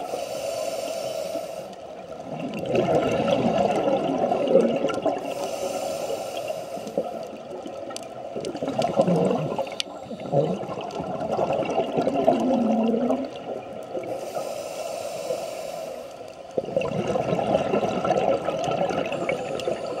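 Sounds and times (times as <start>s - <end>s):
regulator hissing inhale: 0.0s - 1.9s, 5.2s - 7.3s, 14.0s - 16.5s, 19.1s - 20.0s
bubbling gurgling exhales: 2.2s - 5.4s, 7.0s - 14.2s, 16.6s - 20.0s.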